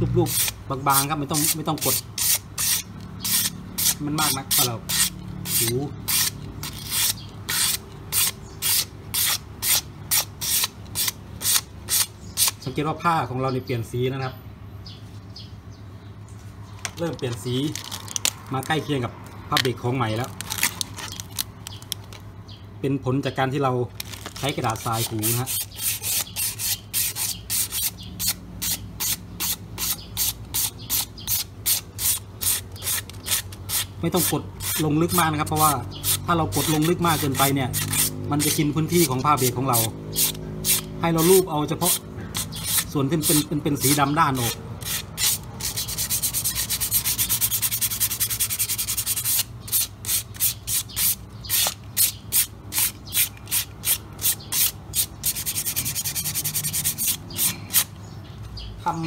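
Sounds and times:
sandpaper rubbing brake lining: 0.2s - 12.6s, 24.1s - 58.0s.

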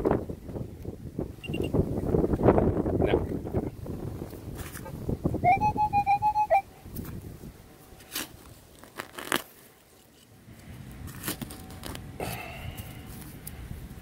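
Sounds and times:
metal detector rapid beeping: 1.4s - 1.8s
soil being dug: 7.8s - 13.6s.

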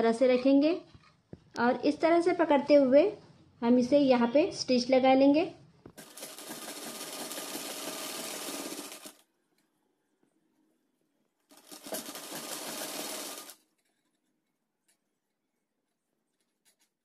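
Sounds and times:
sewing machine stitching: 6.0s - 9.2s, 11.5s - 13.6s.

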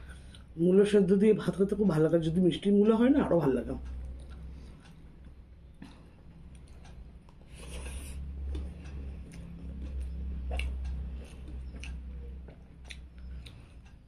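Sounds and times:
person chewing: 4.0s - 14.0s.

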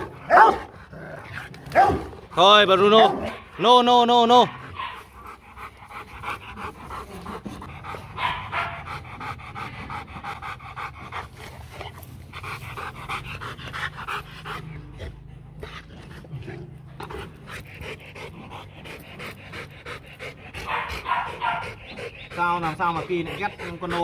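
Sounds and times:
dog panting hard: 4.6s - 24.0s.

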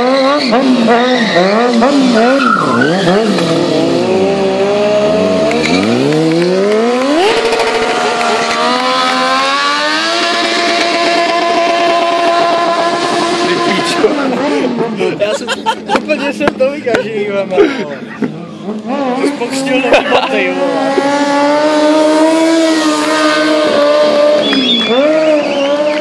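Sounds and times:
motorcycle engine revving: 0.0s - 15.0s, 18.3s - 26.0s.

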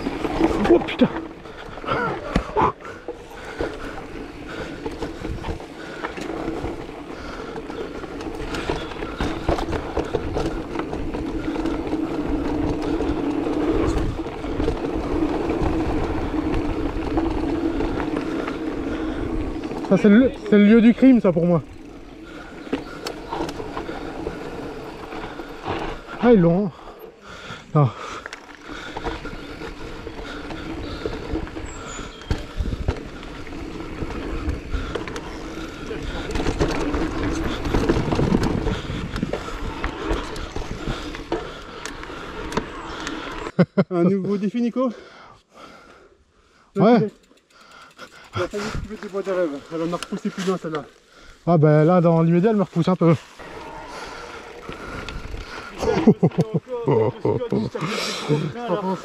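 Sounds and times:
bike rattling and knocking: 0.0s - 43.4s, 46.8s - 50.8s, 51.7s - 59.0s
electric bike motor whine: 3.2s - 26.0s, 28.4s - 43.5s, 53.3s - 56.2s.

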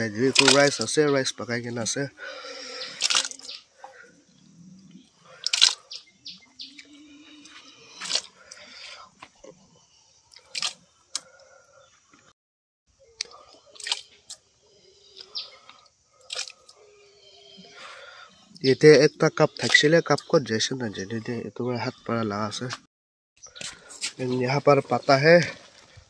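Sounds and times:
hands squelching wet mash: 0.0s - 1.2s, 2.3s - 4.0s, 5.2s - 6.1s, 6.8s - 9.5s, 10.3s - 11.4s, 13.2s - 14.4s, 15.2s - 16.8s
birds chirping faintly: 0.0s - 26.0s
wet slap or splash: 3.0s - 3.4s.

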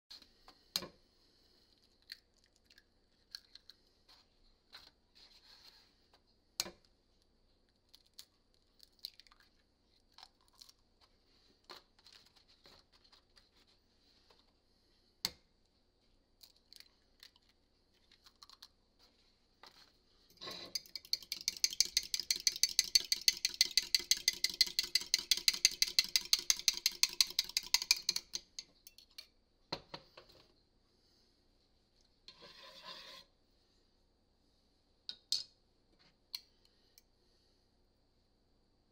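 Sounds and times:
utensil beating eggs in mug: 20.4s - 29.2s.

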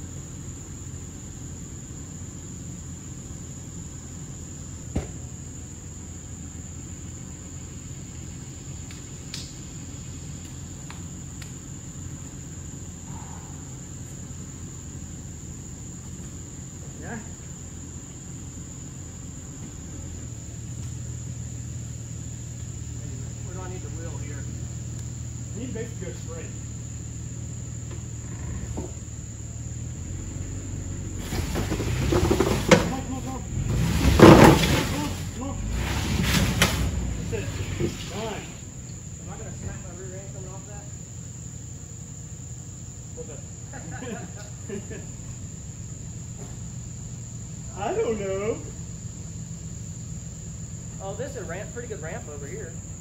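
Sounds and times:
engine running low: 0.0s - 53.0s
insects droning: 0.0s - 53.0s
tyres on rock: 31.2s - 38.6s.

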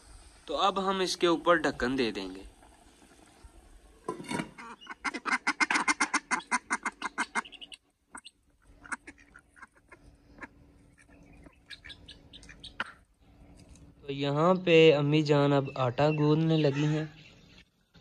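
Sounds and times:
ducks quacking: 4.4s - 13.1s.

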